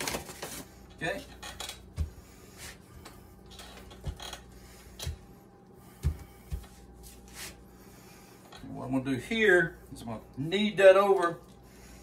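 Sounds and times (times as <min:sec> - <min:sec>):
hands kneading dough: 0:05.0 - 0:07.7.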